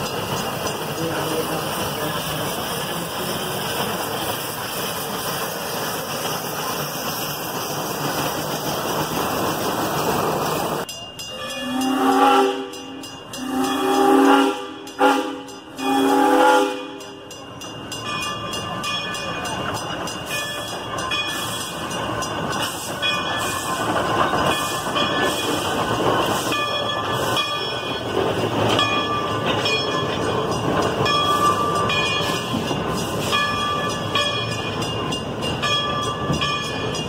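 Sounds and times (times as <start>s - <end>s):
steam locomotive hissing: 0.0s - 37.0s
steam whistle blasts: 11.3s - 17.1s.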